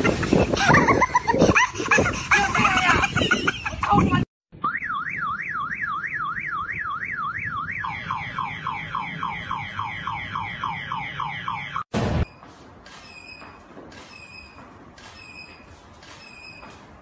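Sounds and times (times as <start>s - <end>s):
car alarm siren: 4.5s - 11.9s.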